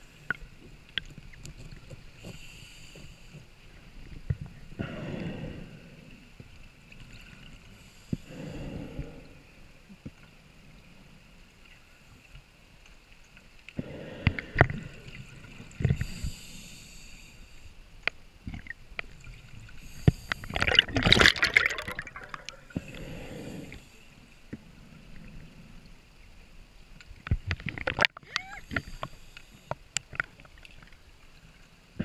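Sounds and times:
inhalation through regulator: 19.9s - 24.0s
bubbles gurgling: 20.4s - 23.0s.

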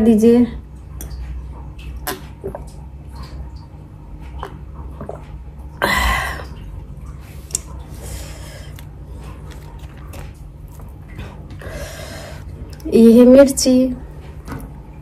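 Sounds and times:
swallowing clicks: 1.0s - 5.4s, 6.5s - 7.8s
breathy exhale: 11.6s - 12.5s.

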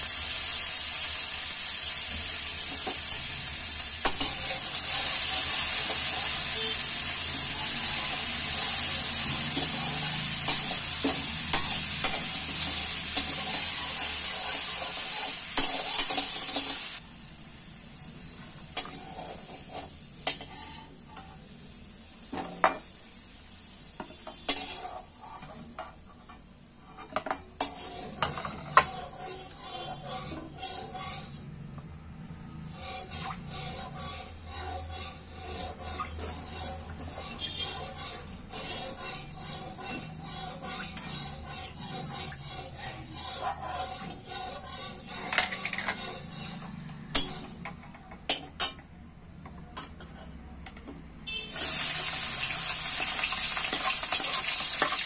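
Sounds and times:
spatula scraping a pan: 0.0s - 17.0s, 18.6s - 21.6s, 23.9s - 48.8s, 49.8s - 50.5s, 51.3s - 55.0s
fat sizzling in a pan: 0.0s - 31.6s, 32.3s - 47.6s, 51.3s - 55.0s.

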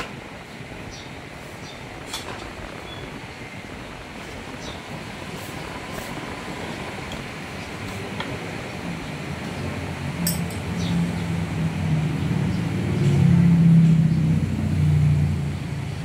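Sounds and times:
vehicle engine running: 9.4s - 16.0s
light metallic clink: 10.2s - 10.7s.

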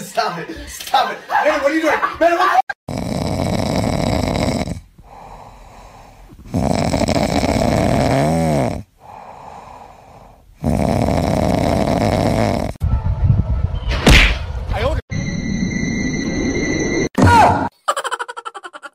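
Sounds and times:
cat snoring: 2.9s - 12.8s.

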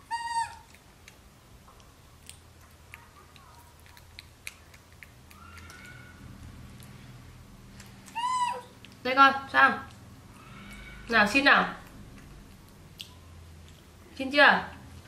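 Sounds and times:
baby monkey squealing cry: 0.0s - 0.7s, 8.1s - 8.8s
eating clicks: 0.3s - 7.0s, 7.7s - 9.1s, 11.8s - 14.0s.

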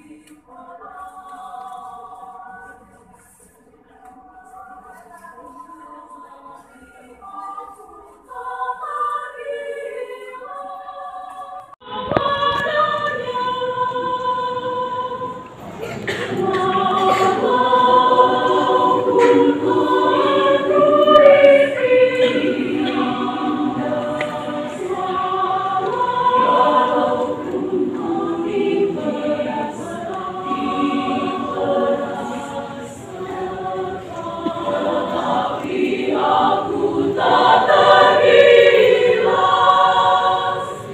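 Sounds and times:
women's choir singing: 0.0s - 40.9s.

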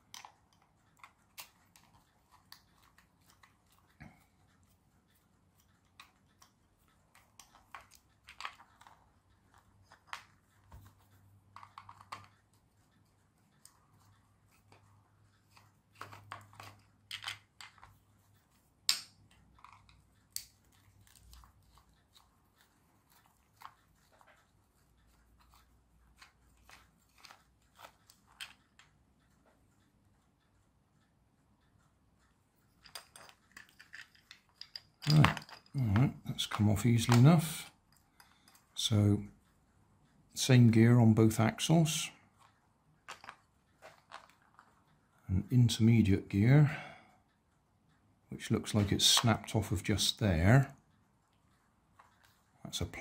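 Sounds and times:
screwdriver clicks and scrapes: 32.7s - 35.7s.

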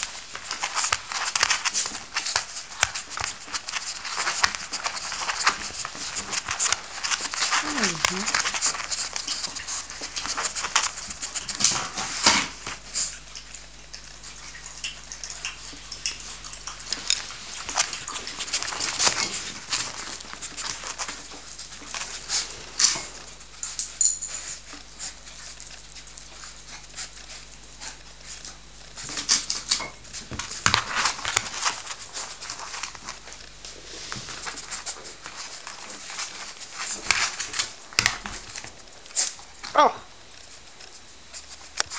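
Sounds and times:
puppy claws clicking on tiles: 0.0s - 33.4s
puppy noises: 0.0s - 41.9s.

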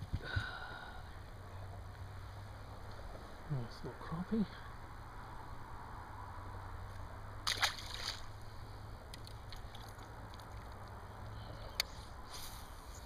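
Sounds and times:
fish splashing into water: 7.4s - 8.4s.

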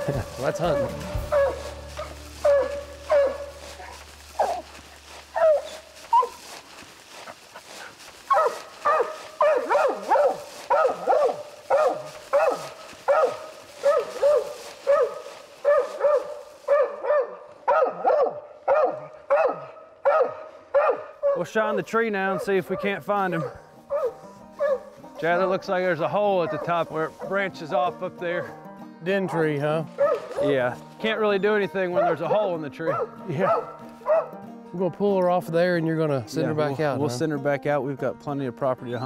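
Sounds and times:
dog barking: 0.0s - 4.7s, 5.3s - 6.4s, 8.3s - 21.4s, 22.3s - 24.9s, 26.4s - 27.4s, 30.0s - 30.5s, 32.0s - 34.4s.

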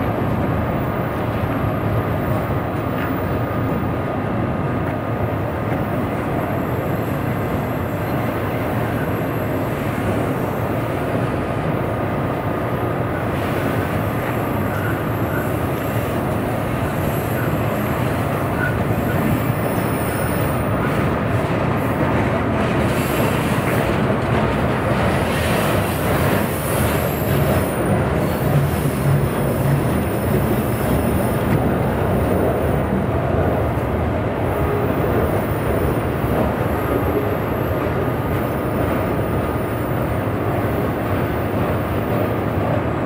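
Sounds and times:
train wheels rolling on rail: 0.0s - 43.0s
faint wheel squeal: 14.6s - 15.6s.

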